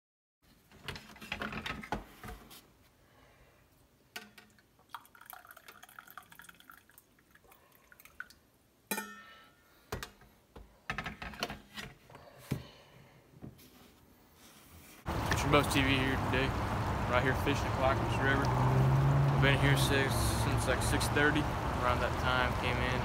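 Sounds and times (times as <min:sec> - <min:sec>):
coffee pouring into a mug: 0:04.8 - 0:08.4.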